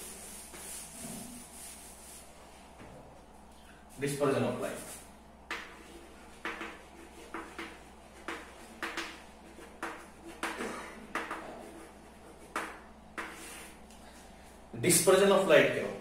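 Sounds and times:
chalk writing on a blackboard: 0:00.0 - 0:02.2, 0:04.8 - 0:13.8.

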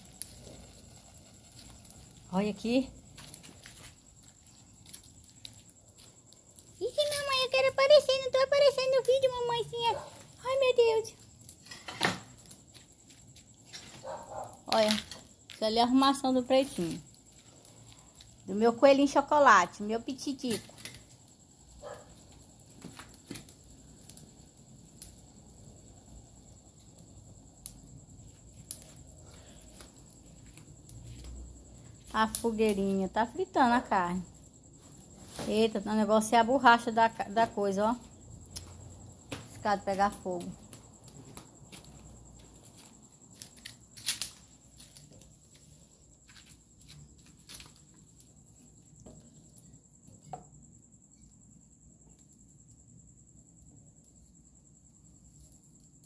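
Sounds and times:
sharp pops and crackles: 0:00.0 - 0:36.0, 0:37.3 - 0:51.3
crickets trilling: 0:00.0 - 0:56.0.

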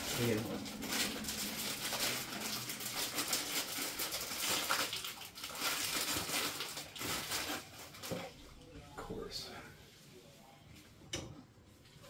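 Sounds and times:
food packaging crinkling: 0:00.0 - 0:08.4.

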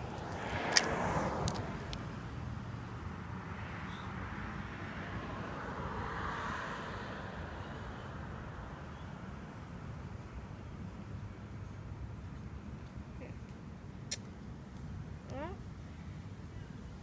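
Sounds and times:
car passing: 0:00.0 - 0:08.9
distant traffic rumble: 0:00.0 - 0:17.0.

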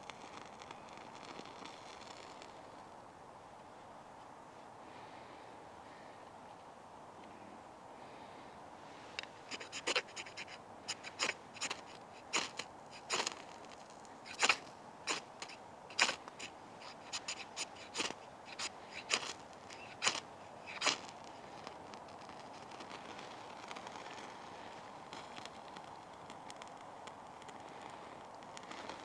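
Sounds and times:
knife scraping fire steel: 0:09.2 - 0:24.8.

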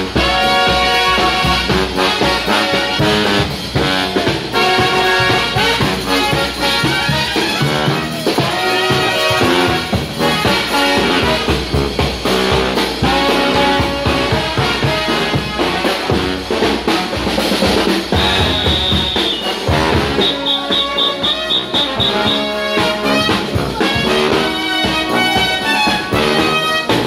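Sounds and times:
brass band playing: 0:00.0 - 0:27.0
quick short high notes: 0:18.1 - 0:24.0
shrill high held note: 0:18.2 - 0:22.6.

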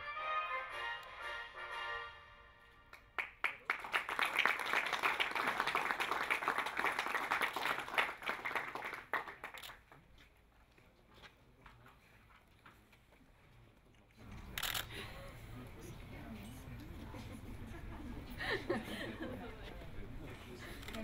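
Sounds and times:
audience applauding: 0:02.9 - 0:09.9.

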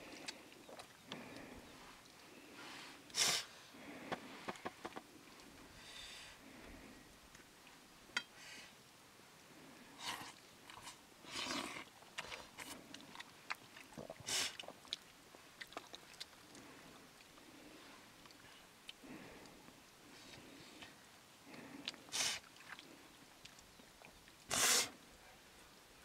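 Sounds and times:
man chewing food: 0:10.7 - 0:19.6, 0:21.5 - 0:24.1
hissing breaths: 0:24.5 - 0:25.0.

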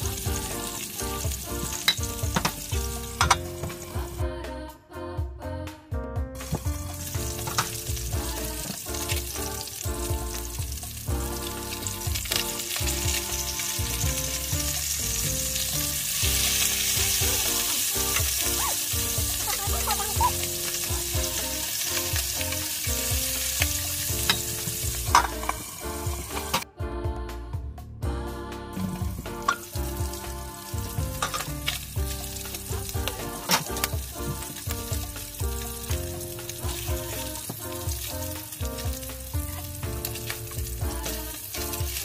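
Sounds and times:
fish sizzling in hot oil: 0:00.0 - 0:04.2, 0:06.4 - 0:26.6, 0:29.4 - 0:42.0
background music: 0:00.0 - 0:42.0.

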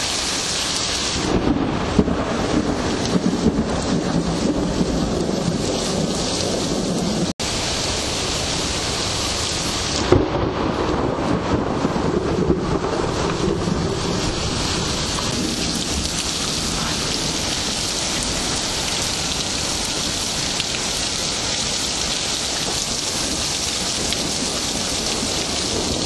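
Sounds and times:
rain hissing: 0:00.0 - 0:26.0
low rumble of thunder: 0:01.2 - 0:26.0.

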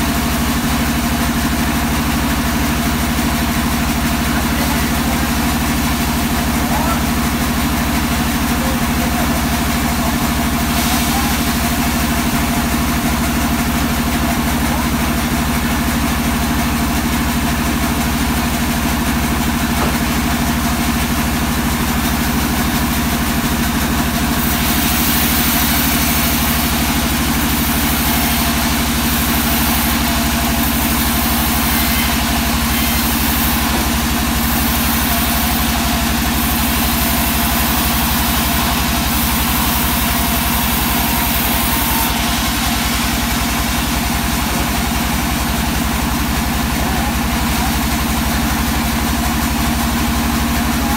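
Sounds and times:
sawmill machine hum: 0:00.0 - 0:50.9
saw blade cutting wood hiss: 0:24.4 - 0:43.5.

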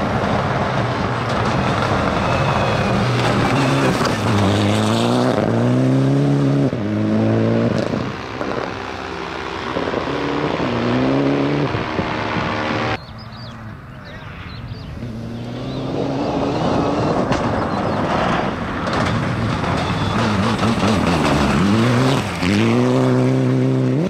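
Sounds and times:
rally car engine revving: 0:00.0 - 0:13.0, 0:15.0 - 0:24.0
tyres on gravel: 0:16.6 - 0:23.3.

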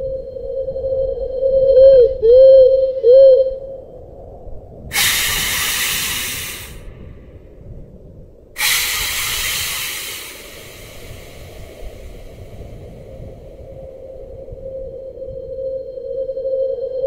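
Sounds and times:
loud hisses: 0:04.9 - 0:07.1, 0:08.6 - 0:14.0.

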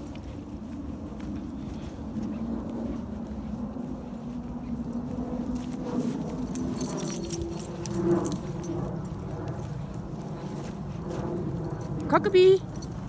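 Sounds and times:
dog lead clips jingling: 0:06.2 - 0:09.7.

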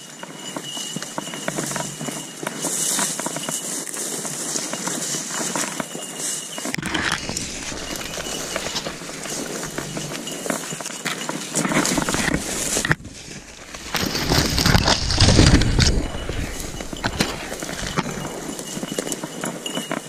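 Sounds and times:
dry grass rustling underfoot: 0:00.4 - 0:20.0
low rumble: 0:11.8 - 0:18.6.

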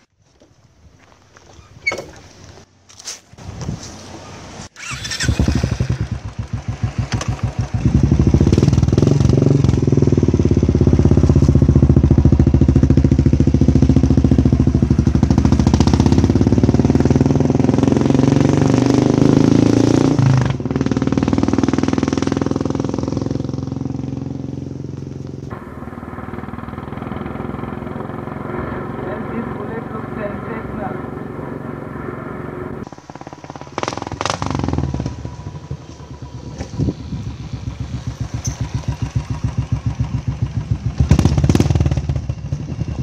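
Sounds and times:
motorcycle engine thumping: 0:04.8 - 0:17.5, 0:32.8 - 0:43.0.

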